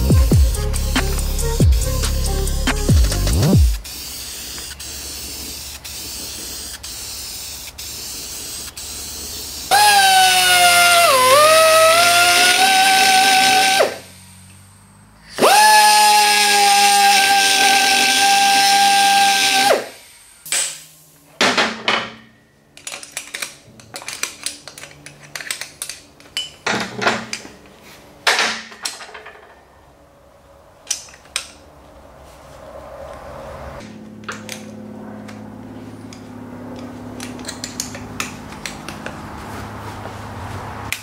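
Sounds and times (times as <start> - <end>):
die grinder whining: 9.4 - 14.1, 15.3 - 20.0.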